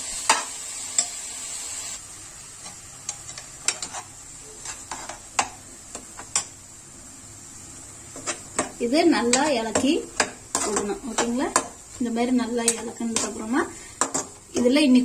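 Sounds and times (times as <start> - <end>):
food sizzling in a pan: 0.0 - 15.0
metal ladle scraping a pan: 2.6 - 5.5.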